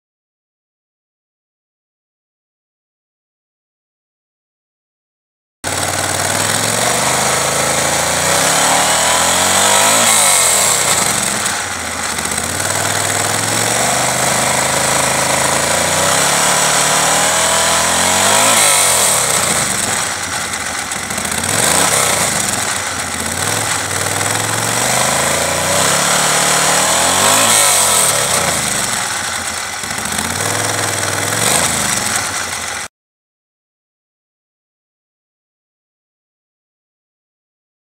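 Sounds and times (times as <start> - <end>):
motorcycle engine idling and revving: 5.6 - 32.9.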